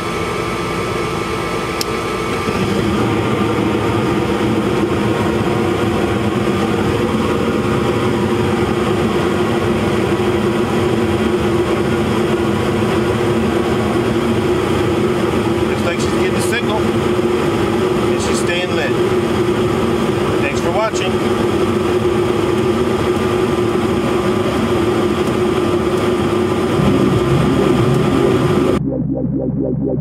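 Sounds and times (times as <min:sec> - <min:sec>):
furnace burners and fan running: 0:00.0 - 0:28.8
furnace ignition click: 0:01.8 - 0:02.6.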